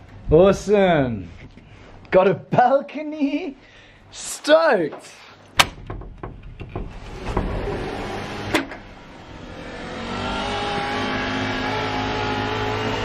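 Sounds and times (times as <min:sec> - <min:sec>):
sliding door opening: 0:05.6 - 0:11.1
machine hum: 0:05.7 - 0:13.0.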